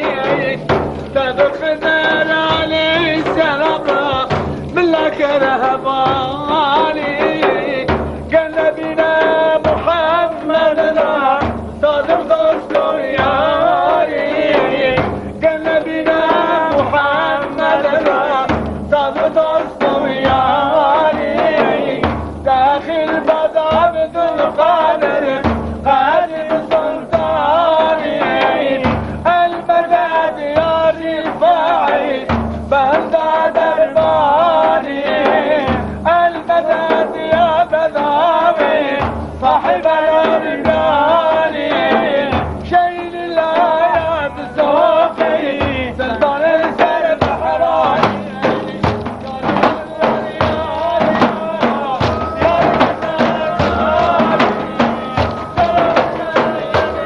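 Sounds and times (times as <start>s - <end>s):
frame drums beating: 0.0s - 57.0s
wavering sung melody: 50.0s - 57.0s.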